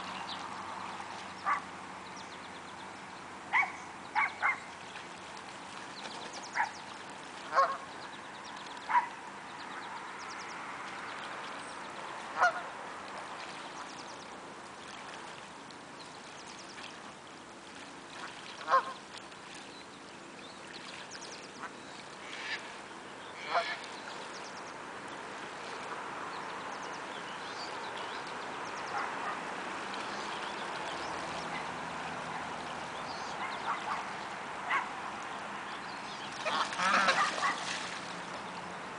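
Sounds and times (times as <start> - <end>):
geese honking: 7.5 - 7.8, 23.4 - 23.9, 36.3 - 37.6.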